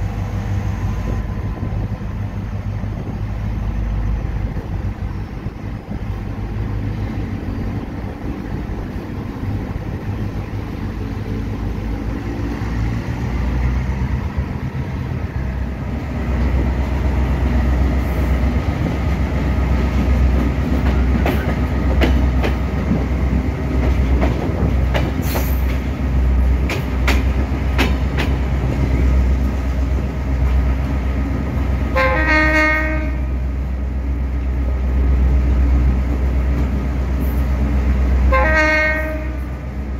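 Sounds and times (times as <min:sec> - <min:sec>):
diesel locomotive engine running: 0:00.0 - 0:39.9
wheels clicking over rail joints: 0:26.6 - 0:29.6
train horn blast: 0:31.9 - 0:33.4, 0:38.3 - 0:39.6.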